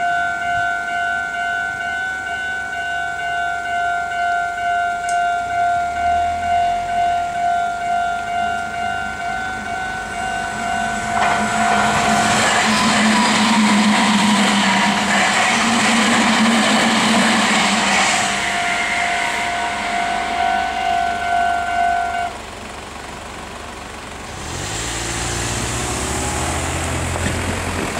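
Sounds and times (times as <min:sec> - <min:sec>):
level-crossing alarm bell dinging: 0:00.0 - 0:22.7
electric train passing: 0:00.0 - 0:27.9
car engine pulling away: 0:24.1 - 0:27.9.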